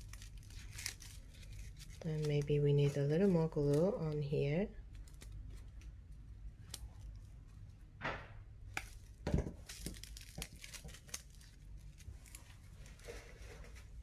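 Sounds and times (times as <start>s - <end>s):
paper rustling: 0.0s - 4.3s, 8.9s - 14.0s
low steady hum: 0.0s - 14.0s.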